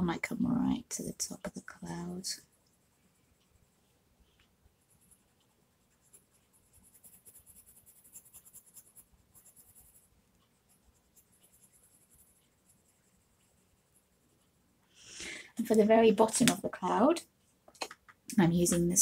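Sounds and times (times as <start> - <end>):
pencil scratching on paper: 1.8 - 14.5.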